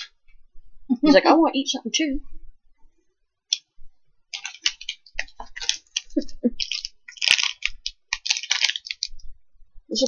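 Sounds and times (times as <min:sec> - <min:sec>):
plastic wrapper crinkling: 0:04.3 - 0:09.4.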